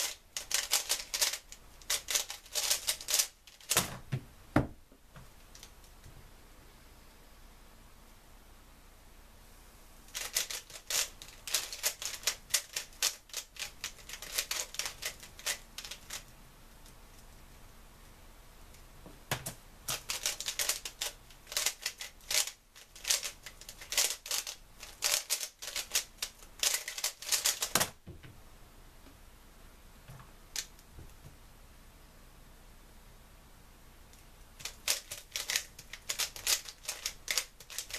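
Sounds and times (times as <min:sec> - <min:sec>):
puzzle cube clicking as turned: 0:00.0 - 0:03.8, 0:10.1 - 0:16.2, 0:19.9 - 0:27.9, 0:34.6 - 0:37.9.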